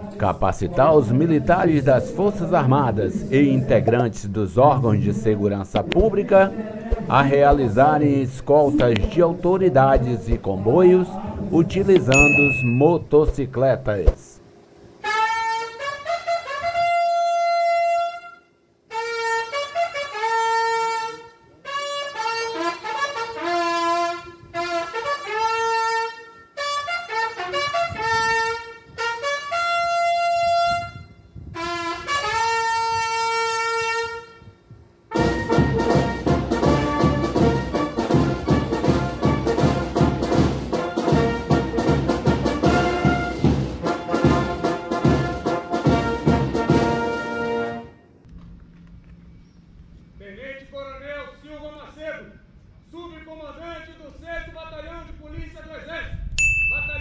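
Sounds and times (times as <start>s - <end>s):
military brass band playing: 15.0s - 18.3s, 18.9s - 34.5s, 35.1s - 48.0s
trumpet holding a long note: 15.0s - 48.1s
steady drum beat: 35.2s - 47.0s.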